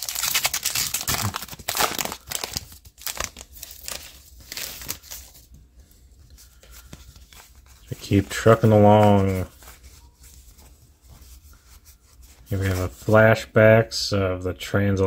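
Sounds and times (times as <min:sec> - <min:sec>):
wrapper crinkling and tearing: 0:00.0 - 0:05.5
cards rustling: 0:00.0 - 0:13.4.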